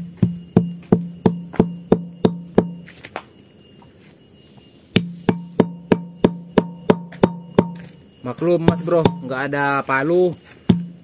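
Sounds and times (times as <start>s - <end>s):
bottle pounding fruit hollow knocks: 0.0s - 2.8s, 5.0s - 7.9s, 8.6s - 9.4s, 10.7s - 11.0s.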